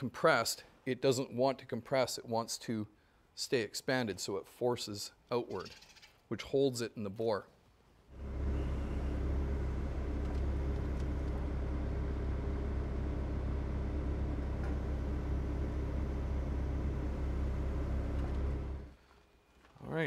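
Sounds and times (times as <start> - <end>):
excavator diesel engine droning: 8.2 - 19.0.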